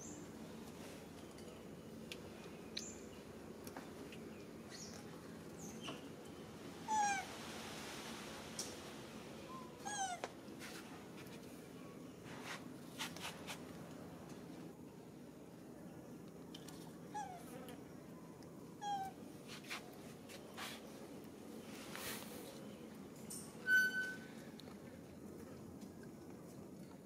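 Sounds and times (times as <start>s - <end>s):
monkey high-pitched falling cries: 6.9s - 7.3s, 9.8s - 10.2s
faint high chirps: 9.4s - 10.1s.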